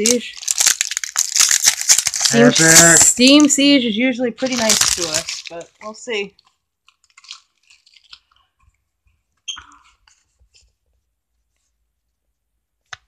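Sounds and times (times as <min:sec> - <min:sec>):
foil wrapper crinkling: 0:00.0 - 0:03.8, 0:04.4 - 0:08.6.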